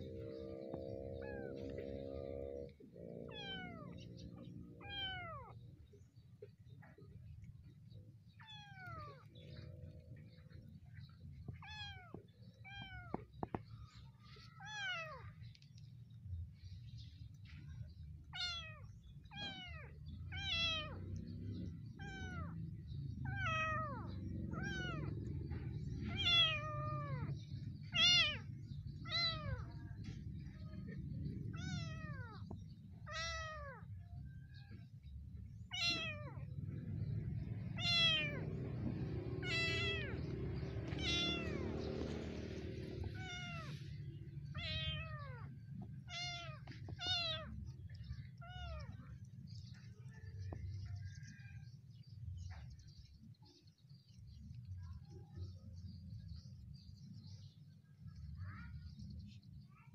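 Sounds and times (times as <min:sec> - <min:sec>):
kitten mewing: 0:39.4 - 0:40.2, 0:40.9 - 0:41.6, 0:43.1 - 0:43.8, 0:44.5 - 0:47.6.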